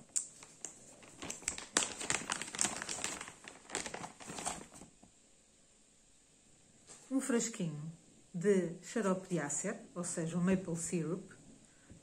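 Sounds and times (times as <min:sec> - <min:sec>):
plastic bag crinkling: 0:00.0 - 0:05.0.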